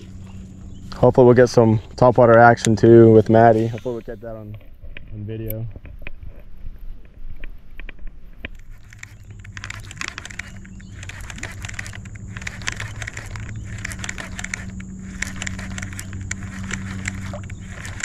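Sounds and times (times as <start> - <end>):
small motor humming: 0.0 - 3.8, 8.6 - 18.0
light clicks and ticks: 7.3 - 18.0.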